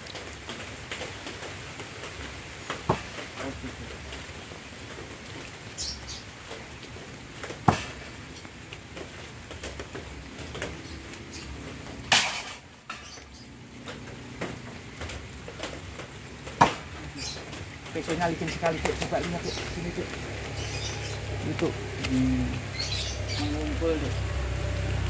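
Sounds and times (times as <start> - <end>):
light rain patter: 0.0 - 25.0
knives striking wooden target: 16.6 - 16.9.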